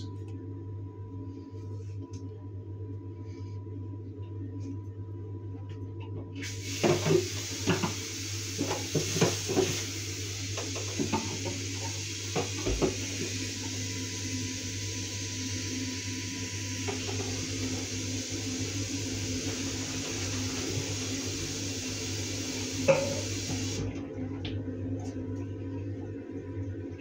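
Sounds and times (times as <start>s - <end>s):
tap running into sink: 6.4s - 9.9s, 10.5s - 13.8s, 19.4s - 23.9s.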